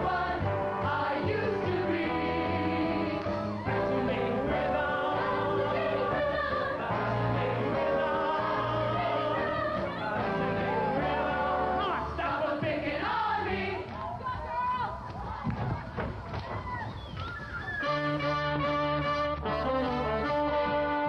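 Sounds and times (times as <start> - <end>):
group singing long notes: 0.0 - 14.0
band playing: 17.8 - 21.0.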